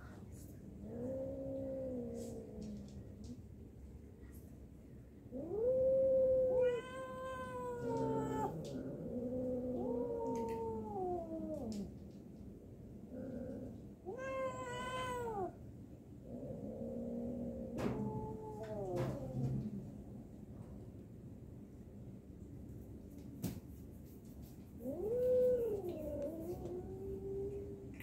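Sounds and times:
cats yowling: 5.3 - 11.9, 14.0 - 15.6, 17.5 - 19.8, 24.8 - 28.0.

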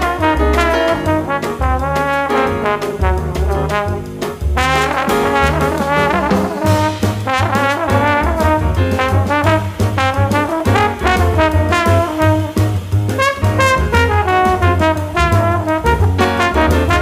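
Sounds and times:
lively background music: 0.0 - 17.0.

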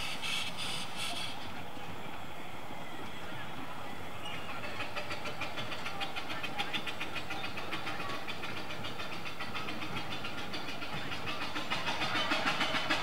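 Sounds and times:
steam locomotive ticking beat: 4.5 - 13.0.

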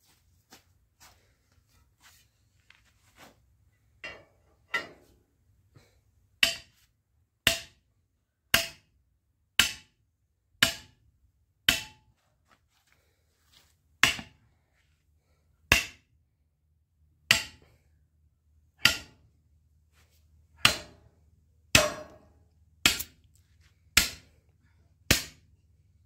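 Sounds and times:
hammer striking steel bar: 6.4 - 6.8, 7.4 - 7.8, 8.5 - 8.9, 9.6 - 10.0, 10.6 - 11.0, 11.6 - 12.1, 14.0 - 14.4, 15.7 - 16.1, 17.2 - 17.7, 18.8 - 19.3, 20.6 - 21.1, 21.7 - 23.2, 24.0 - 24.4, 25.1 - 25.5.

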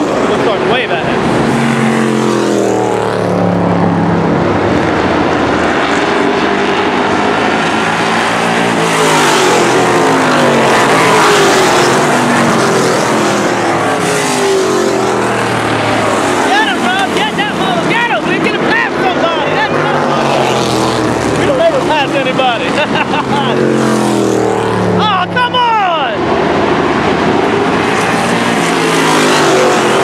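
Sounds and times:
race cars passing: 0.0 - 30.0.

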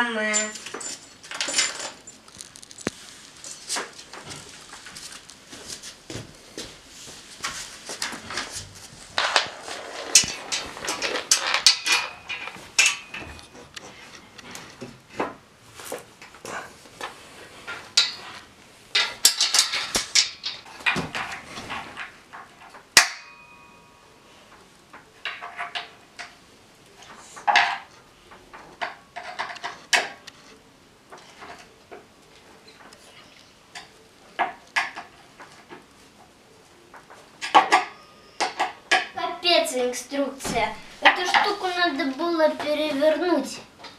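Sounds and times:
metal desk frame and screws clattering: 0.3 - 2.9, 9.2 - 14.8, 17.7 - 23.4
sharp metallic clink: 23.0 - 24.1.

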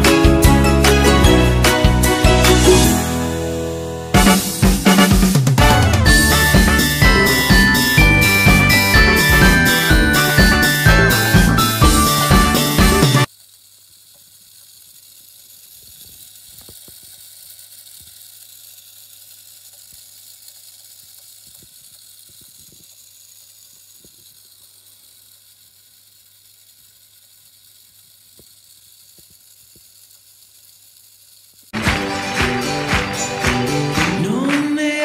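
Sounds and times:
faint steady hiss: 13.2 - 31.7.

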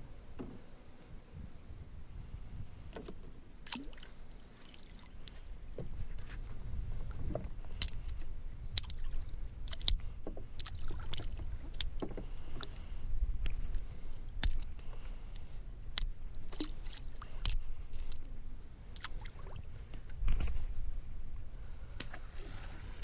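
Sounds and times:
steady low rumble: 0.0 - 23.0
water lapping and splashing: 3.6 - 20.0.

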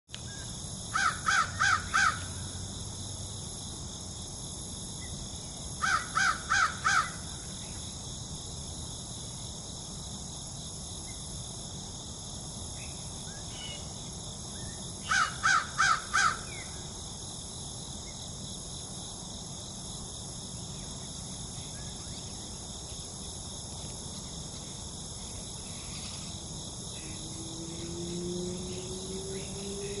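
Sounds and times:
crow cawing: 1.0 - 2.3, 5.8 - 7.2, 15.1 - 16.5.

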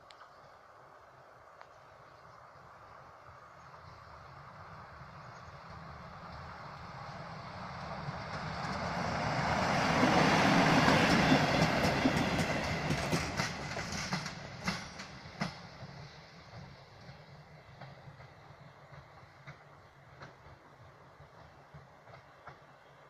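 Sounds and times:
passenger train passing: 0.0 - 23.0
wheels clacking over rail joints: 7.5 - 23.0.

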